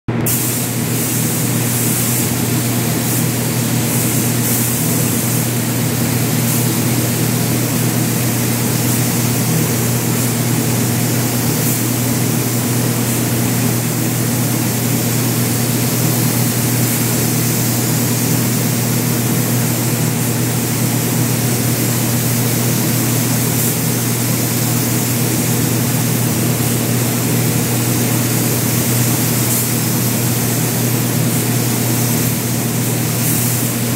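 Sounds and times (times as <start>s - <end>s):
ventilation fans droning: 0.1s - 33.9s
spray gun hissing: 0.2s - 33.9s.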